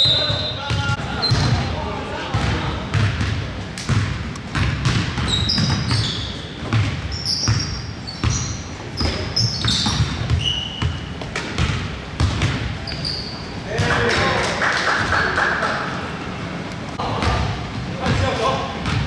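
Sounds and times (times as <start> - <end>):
sneaker squeaks: 0.0 - 3.2, 3.8 - 13.8
basketball bouncing on wood floor: 2.3 - 12.7.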